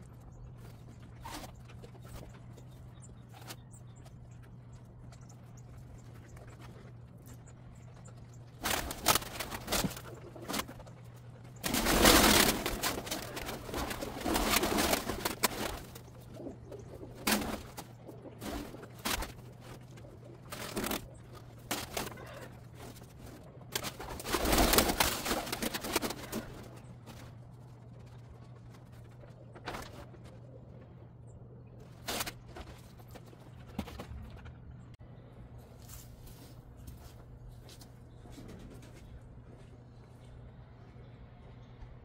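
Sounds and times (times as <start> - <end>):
pigeons cooing: 5.4 - 27.3
pigeon wings flapping: 8.4 - 30.6.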